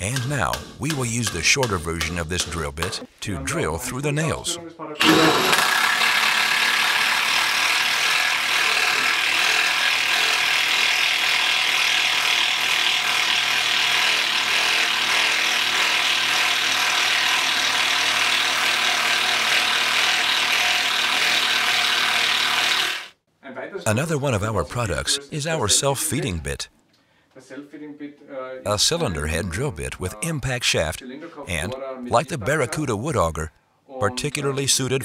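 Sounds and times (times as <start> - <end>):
cordless drill boring into wood: 5.0 - 23.2.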